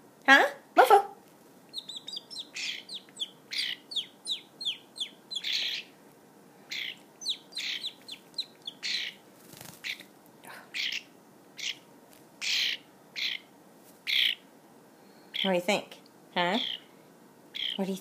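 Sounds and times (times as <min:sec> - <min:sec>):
harsh rasping bird calls: 0:01.7 - 0:06.0, 0:06.7 - 0:10.0, 0:10.7 - 0:14.5, 0:15.2 - 0:15.6, 0:16.6 - 0:17.8
starling chirping: 0:01.7 - 0:06.0, 0:06.7 - 0:10.0, 0:10.7 - 0:14.5, 0:15.2 - 0:15.7, 0:16.5 - 0:16.9, 0:17.5 - 0:18.0.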